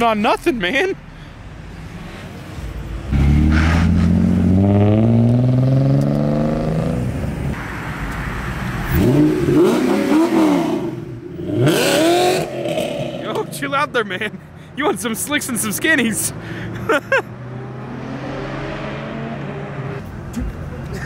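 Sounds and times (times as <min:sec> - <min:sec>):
car engine accelerating: 0:03.0 - 0:07.6
engine revving blips: 0:03.1 - 0:07.0.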